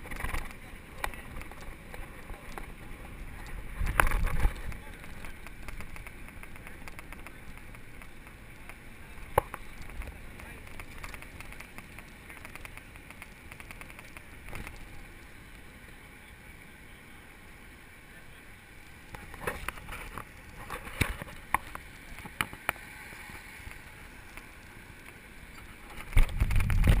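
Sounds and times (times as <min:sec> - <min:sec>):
low wind buffeting: 0:00.0 - 0:12.2, 0:23.7 - 0:27.0
bicycle clicks and rattles: 0:00.0 - 0:15.3, 0:19.1 - 0:27.0
road and tyre noise: 0:00.0 - 0:27.0
wind on microphone: 0:01.2 - 0:06.1, 0:26.0 - 0:27.0.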